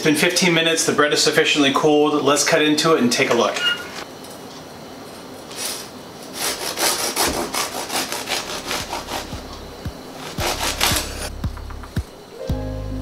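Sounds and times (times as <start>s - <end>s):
bread knife sawing through crust: 6.4s - 11.3s.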